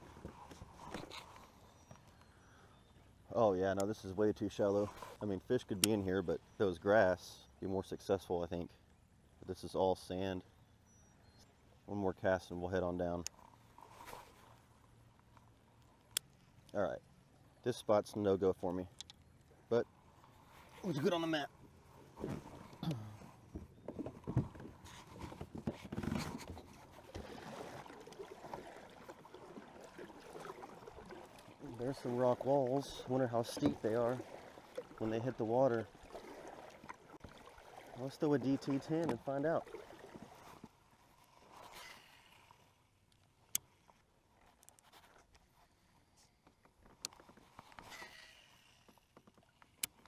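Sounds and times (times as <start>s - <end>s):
kayak paddle strokes: 0.0s - 2.2s, 4.7s - 6.0s, 13.3s - 14.7s, 20.0s - 42.8s, 43.5s - 50.0s
water trickling and splashing: 24.4s - 42.8s.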